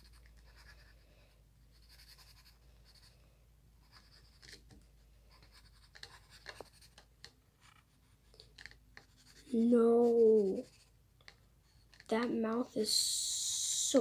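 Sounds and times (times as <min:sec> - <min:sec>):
pencil scratching on paper: 0:00.0 - 0:01.0, 0:01.7 - 0:03.1, 0:03.8 - 0:04.6, 0:05.3 - 0:11.0.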